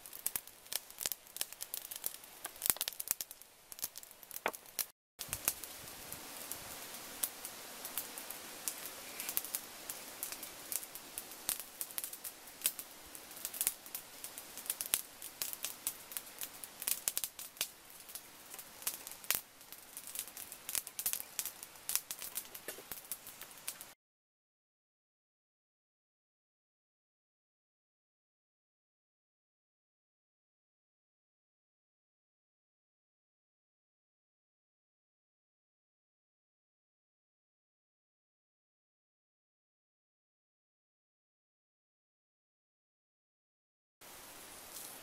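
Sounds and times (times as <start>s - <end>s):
meat sizzling with crackles and pops: 0.0s - 24.0s, 44.0s - 45.0s
steady hiss: 0.0s - 24.0s, 44.0s - 45.0s.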